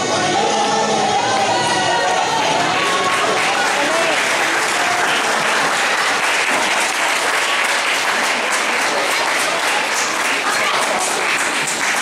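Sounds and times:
audience applauding: 2.2 - 12.0.

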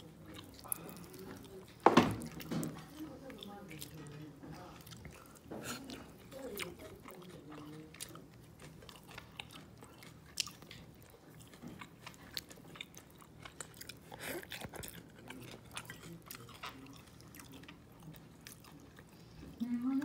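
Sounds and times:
wet chewing clicks and smacks: 0.0 - 20.0.

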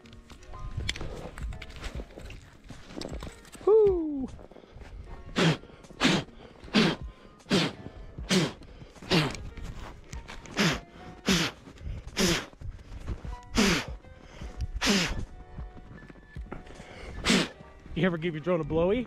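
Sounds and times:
person blowing sharp puffs: 4.4 - 15.6, 16.5 - 17.8.

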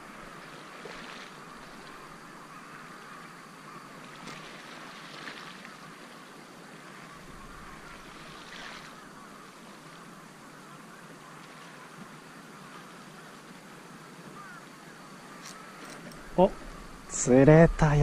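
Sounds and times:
water lapping against quay: 0.0 - 14.6.

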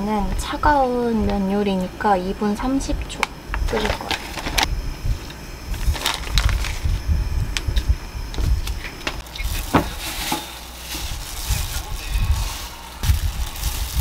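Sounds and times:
vegetables rustling in glass bowl: 9.2 - 14.0.

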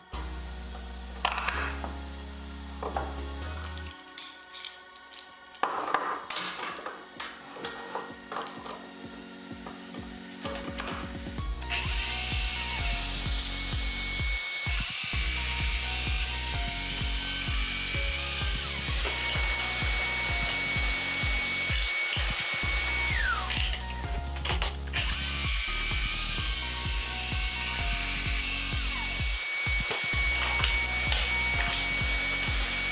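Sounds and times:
background music: 0.0 - 32.9
power joiner motor whine: 6.6 - 32.9.

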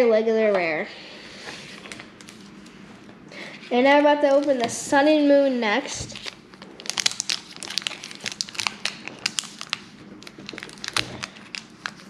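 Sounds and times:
foil wrapper crinkling: 6.0 - 12.0.

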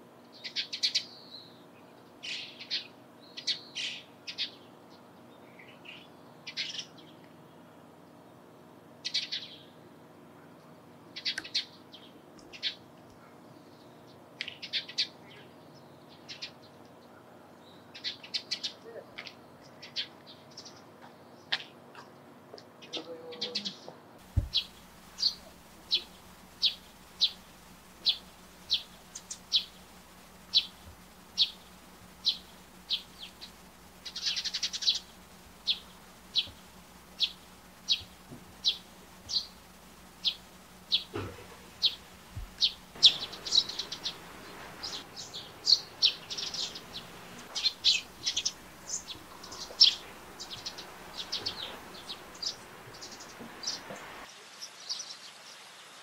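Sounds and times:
sparrow chirping: 0.3 - 5.0, 5.6 - 7.1, 9.0 - 9.7, 17.6 - 21.7, 24.4 - 54.2.

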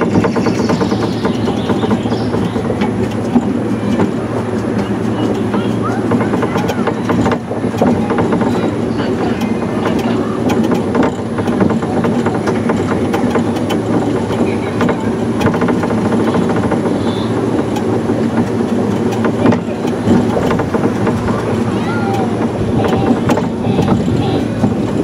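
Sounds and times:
monorail car rumbling and rattling: 0.0 - 25.0.

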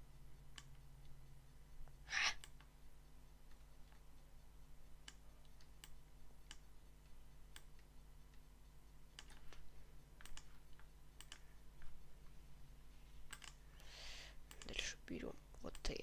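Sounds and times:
faint steady low hum: 0.0 - 16.0
mouse and keyboard clicks: 9.1 - 9.6, 10.2 - 11.9, 13.3 - 13.6.

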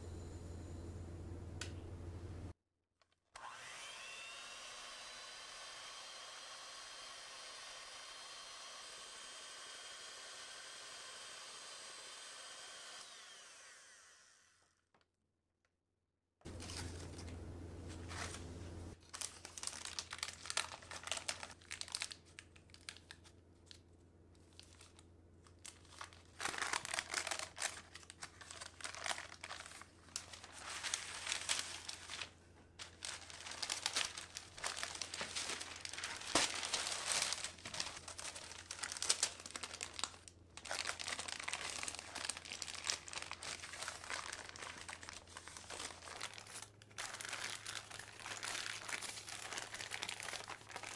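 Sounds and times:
baking paper crinkling: 16.5 - 50.9.

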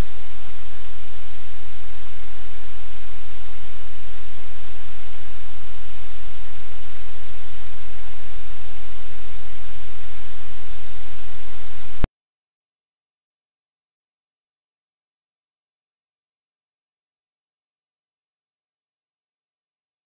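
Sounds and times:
low electrical hum: 0.0 - 12.1
static hiss: 0.0 - 12.1.

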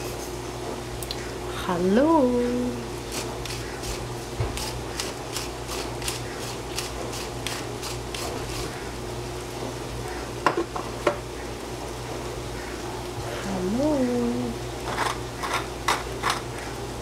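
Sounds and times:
low steady hum: 0.0 - 17.0
seasoning shaker shaking: 3.0 - 8.8.

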